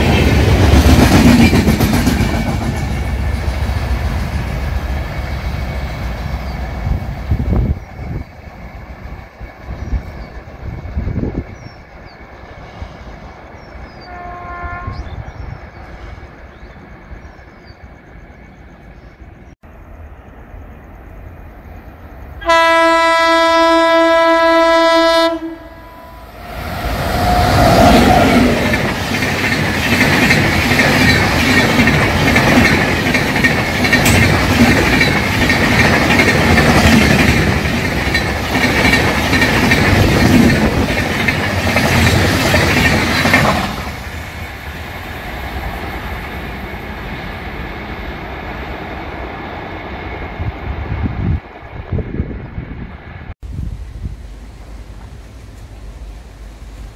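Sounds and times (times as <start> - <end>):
train wheels rushing on rails: 0.0 - 19.5, 20.8 - 56.9
locomotive horn blast: 14.0 - 15.1, 22.4 - 28.6.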